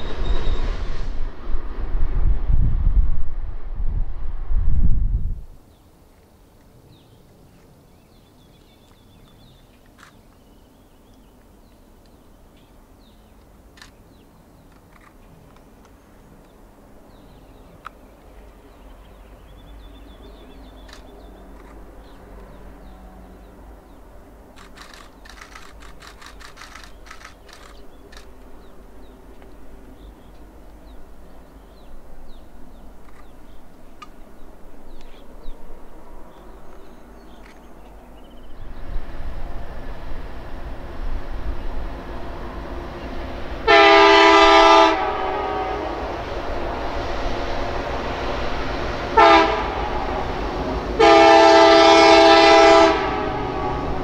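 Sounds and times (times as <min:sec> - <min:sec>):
distant diesel locomotive rumble: 0:00.0 - 0:05.7, 0:06.4 - 0:54.0
birds chirping: 0:06.9 - 0:38.9
sharp clicks: 0:13.4 - 0:14.0, 0:20.8 - 0:21.8, 0:24.5 - 0:28.5.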